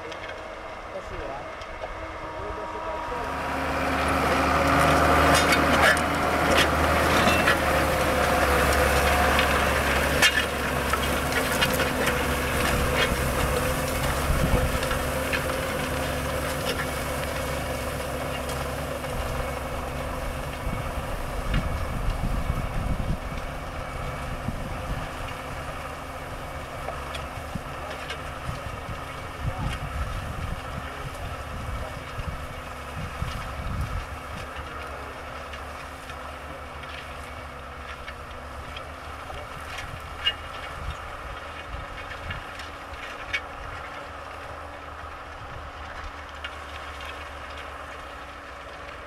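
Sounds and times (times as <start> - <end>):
tractor diesel engine under load: 0.0 - 49.0
harrow clinking and rattling: 3.5 - 33.8.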